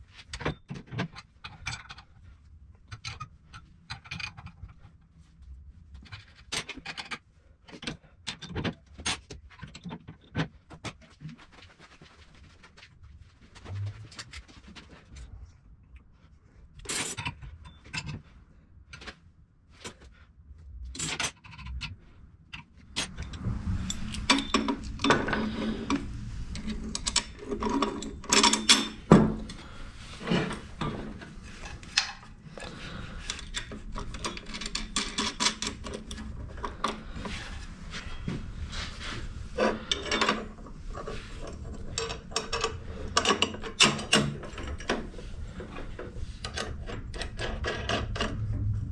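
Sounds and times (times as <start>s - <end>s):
metal rubbing and scraping: 13.4s - 15.2s, 22.7s - 48.9s
steady low hum: 22.0s - 48.9s
metal parts clicking and clinking: 23.0s - 29.6s, 30.2s - 37.4s, 39.6s - 48.5s.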